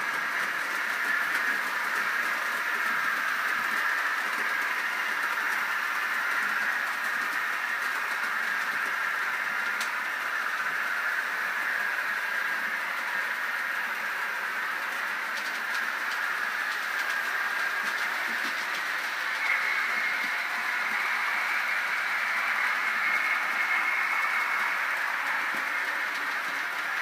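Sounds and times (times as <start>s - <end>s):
model train motor whirring: 0.0s - 27.0s.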